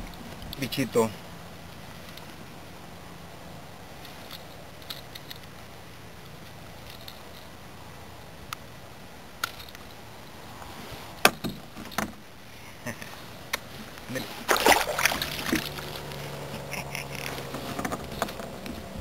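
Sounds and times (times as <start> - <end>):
steady low hiss: 0.0 - 19.0
small clicks and rustles: 1.7 - 2.5, 4.0 - 7.6, 9.4 - 12.3, 15.0 - 19.0.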